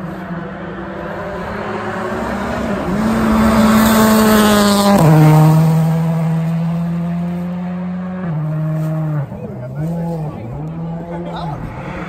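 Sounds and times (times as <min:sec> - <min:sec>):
rally car engine passing by: 0:00.0 - 0:12.0.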